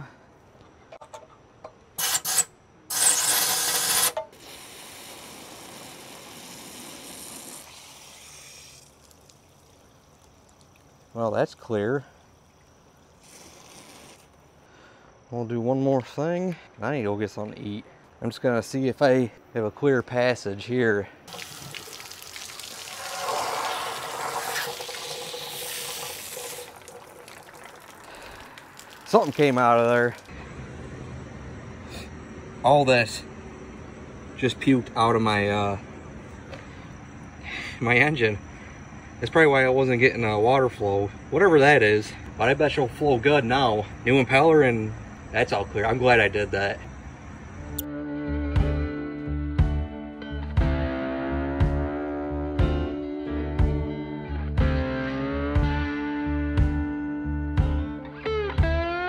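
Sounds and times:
water spraying through passage: 21.3 - 30.3.

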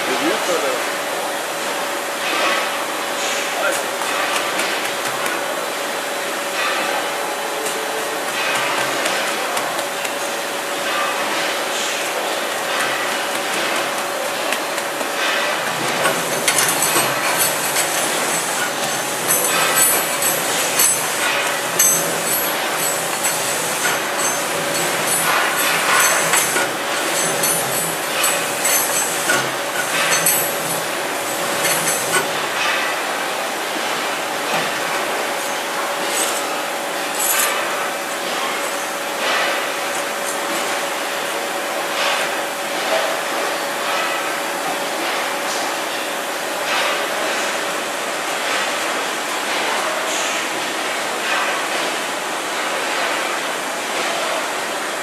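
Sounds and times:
factory machinery din: 6.4 - 38.6
carriage clattering on rail: 6.6 - 33.0
motor hum: 15.6 - 32.6.

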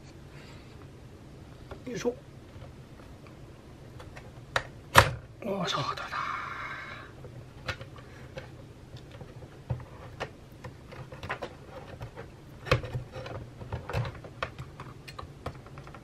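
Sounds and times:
small clicks and knocks: 7.2 - 16.0.

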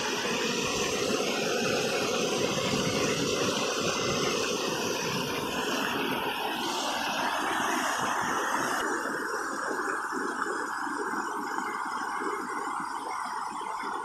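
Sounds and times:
river flowing over stones: 0.0 - 11.2.

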